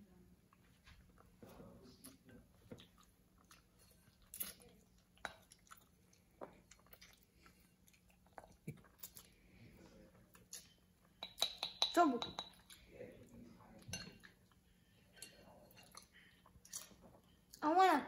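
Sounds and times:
child chewing noodles: 0:01.0 - 0:11.2, 0:13.6 - 0:17.6.

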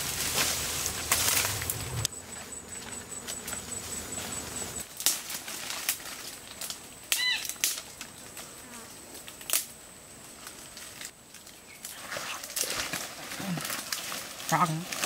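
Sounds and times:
dry grass and twigs crackling: 0:00.0 - 0:15.0
twigs snapping: 0:00.2 - 0:01.8, 0:04.9 - 0:08.1, 0:09.2 - 0:09.8, 0:10.4 - 0:15.0.

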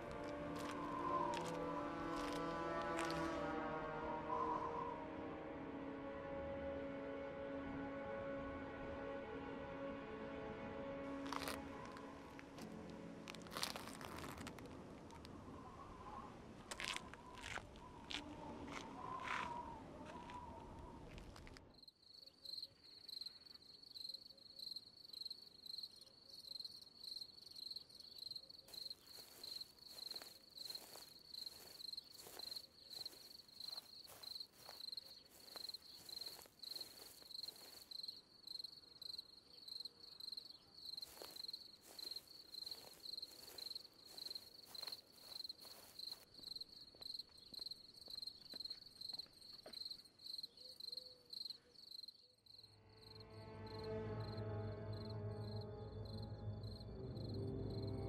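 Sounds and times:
crickets chirping: 0:18.7 - 0:58.0.

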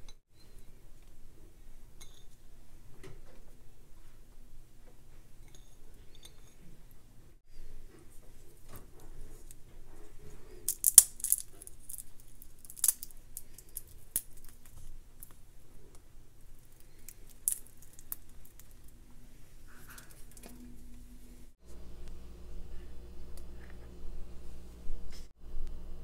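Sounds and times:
walnut pieces clicking on a plate: 0:10.7 - 0:14.6, 0:16.8 - 0:18.8.

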